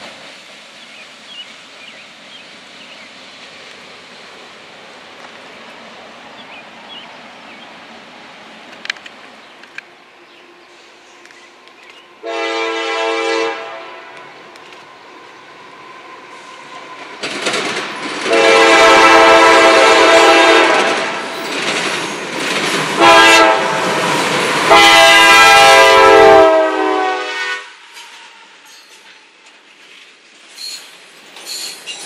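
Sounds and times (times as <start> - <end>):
train wheels rumbling on rails: 0.0 - 32.0
locomotive air horn blasts: 12.2 - 14.4, 18.3 - 21.2, 23.0 - 24.0, 24.7 - 28.7.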